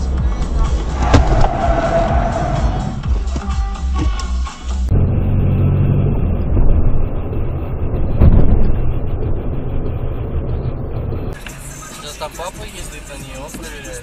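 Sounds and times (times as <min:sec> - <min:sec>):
car engine and tyres rumbling: 0:00.0 - 0:14.0
sharp thump: 0:01.0 - 0:01.8, 0:08.1 - 0:09.0.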